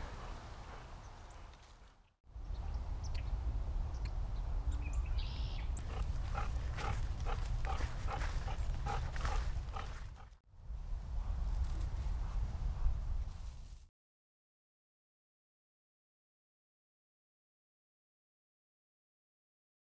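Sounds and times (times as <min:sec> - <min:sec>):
dog panting: 0:05.8 - 0:10.4.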